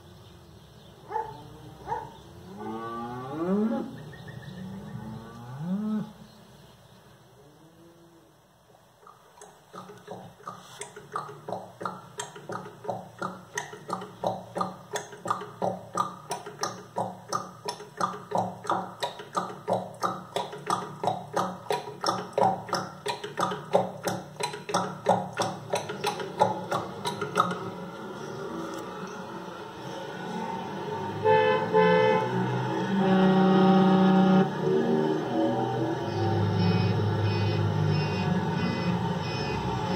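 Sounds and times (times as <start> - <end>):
donkey hooves clip-clopping: 9.0 - 27.8.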